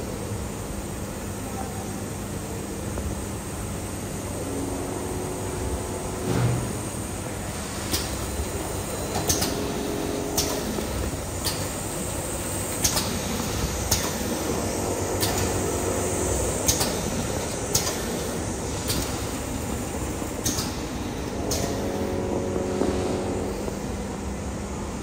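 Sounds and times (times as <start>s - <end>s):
shrink-wrapping machine running: 7.3s - 24.0s.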